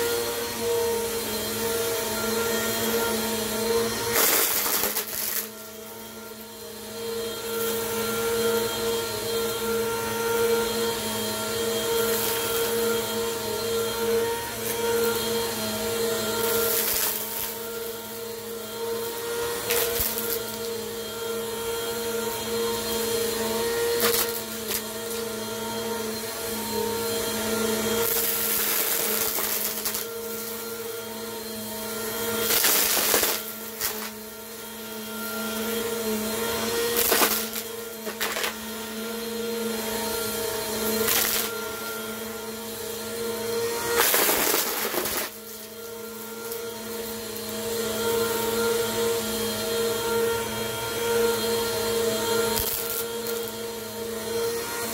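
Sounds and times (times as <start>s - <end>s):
vacuum cleaner motor hum: 0.0s - 54.9s.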